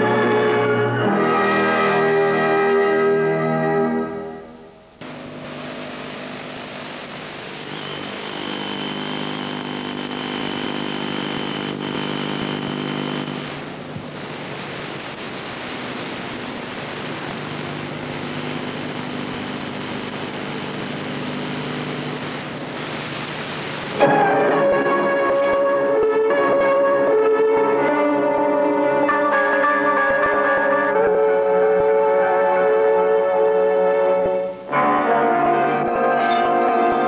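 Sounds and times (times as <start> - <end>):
videotape hiss: 0.0 - 37.0
faint high whine: 2.0 - 37.0
low buzzing hum: 5.0 - 24.0.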